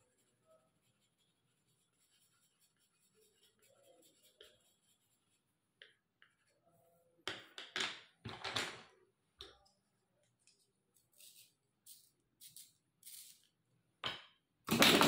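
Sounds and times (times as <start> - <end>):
pencils clattering on desk: 7.3 - 8.9, 14.1 - 15.0.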